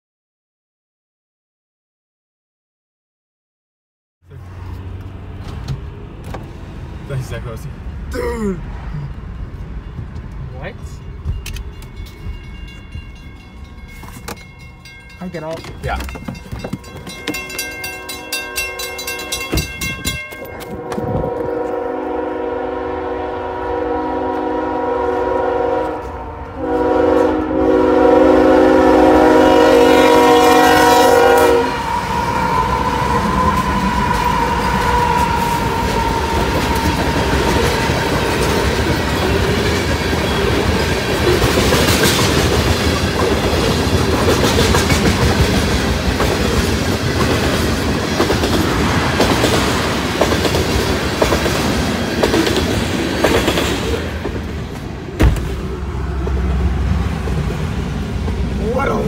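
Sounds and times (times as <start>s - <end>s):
railroad crossing bells clanging: 7.1s - 55.1s
train wheels rumbling and clacking: 9.0s - 22.2s, 24.2s - 59.0s
locomotive horn: 17.6s - 19.6s, 20.4s - 37.1s.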